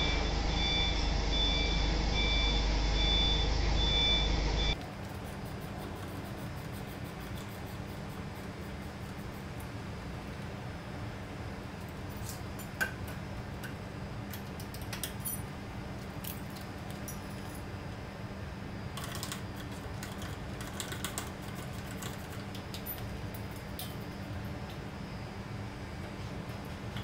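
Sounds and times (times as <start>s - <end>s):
steady low hum: 0.0s - 27.0s
metallic clicks and clinks of tools: 12.1s - 15.5s.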